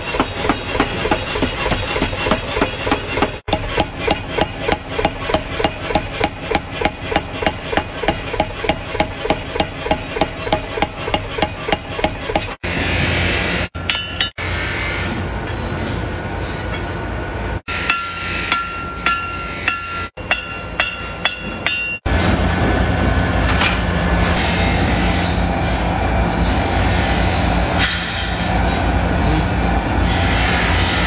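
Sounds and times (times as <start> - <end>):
hammer striking steel on anvil: 13.8 - 14.4, 17.7 - 22.1.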